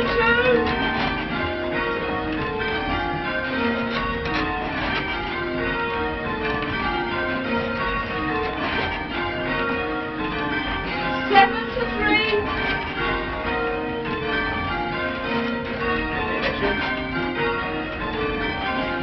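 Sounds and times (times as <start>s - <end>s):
church bells ringing: 0.0s - 19.0s.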